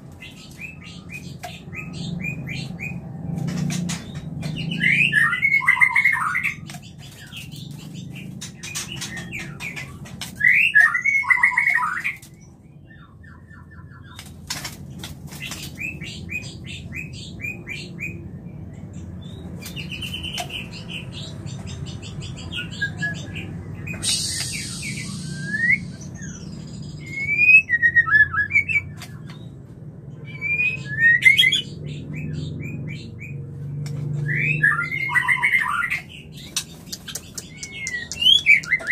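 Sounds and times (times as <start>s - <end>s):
birds calling and whistling: 0.0s - 38.9s
steady low hum: 23.5s - 27.2s
bird clicks: 36.5s - 38.9s.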